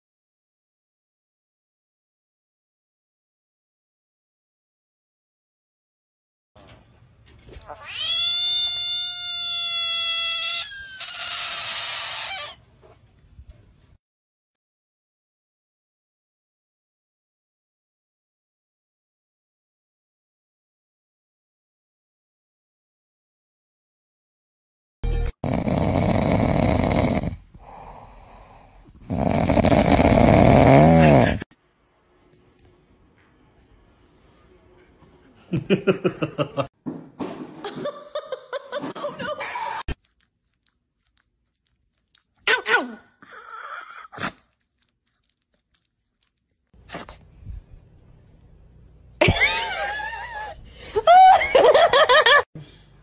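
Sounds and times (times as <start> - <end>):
frog screaming: 7.7 - 12.6
pig snoring: 25.4 - 28.4, 29.0 - 31.5.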